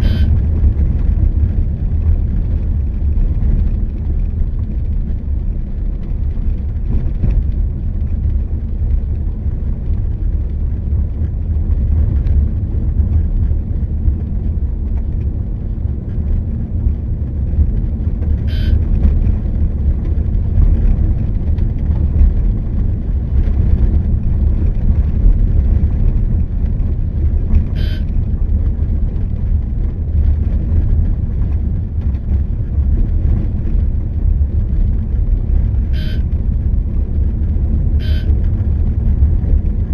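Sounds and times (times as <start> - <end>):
car horn toots: 0.0 - 0.4, 18.5 - 18.8, 27.7 - 28.1, 35.9 - 36.3, 38.0 - 38.3
vehicle road rumble: 0.0 - 39.9.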